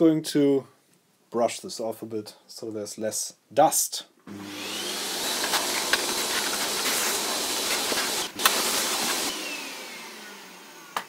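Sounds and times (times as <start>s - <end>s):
motor winding down whine: 4.3s - 11.0s
vacuum cleaner running: 4.3s - 11.0s.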